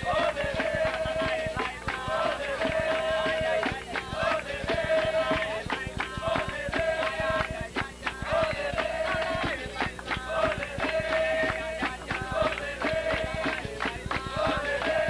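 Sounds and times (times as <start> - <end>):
fast hand percussion: 0.0 - 15.0
voices singing together: 0.0 - 15.0.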